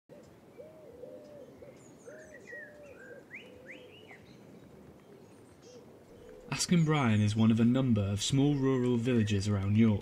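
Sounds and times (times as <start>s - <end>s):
pigeon cooing: 0.1s - 4.2s, 5.1s - 6.6s
small birds chirping: 0.1s - 10.0s.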